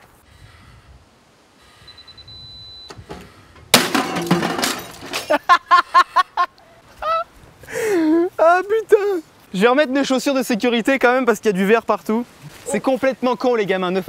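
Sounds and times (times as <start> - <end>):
high warning beep: 1.9 - 3.0
microwave crashing with breaking glass: 3.7 - 5.4.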